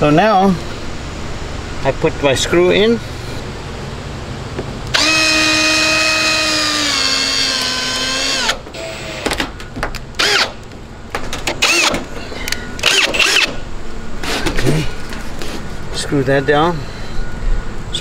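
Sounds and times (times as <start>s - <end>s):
power drill driving screw into metal: 4.9s - 9.5s, 10.2s - 10.6s, 11.5s - 12.0s, 12.8s - 13.6s.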